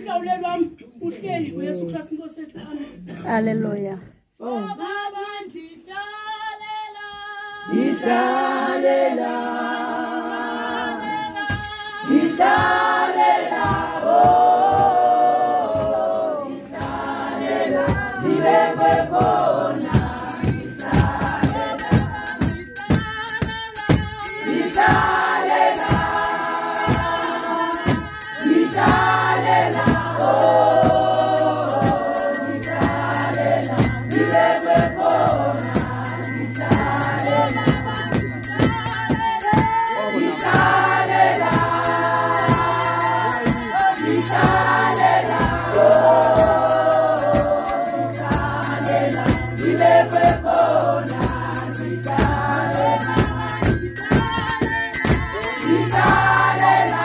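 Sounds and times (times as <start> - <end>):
single voice singing: 4.4 - 57.0
congregation singing a hymn: 7.4 - 23.0, 24.0 - 57.0
rhythmic sharp strokes: 11.6 - 57.0.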